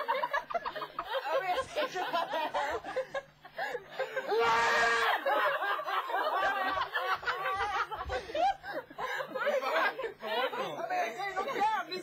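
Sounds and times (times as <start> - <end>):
long high-pitched cry: 4.3 - 5.2.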